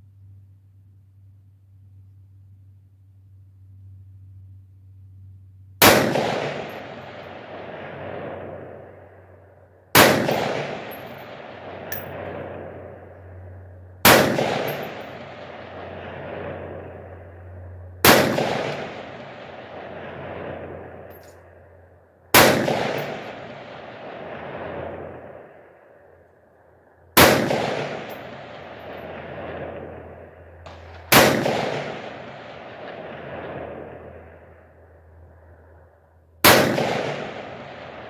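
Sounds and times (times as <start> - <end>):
rifle shots with echo: 5.8 - 13.4, 14.0 - 21.7, 22.3 - 26.2, 27.1 - 35.0, 36.4 - 38.0.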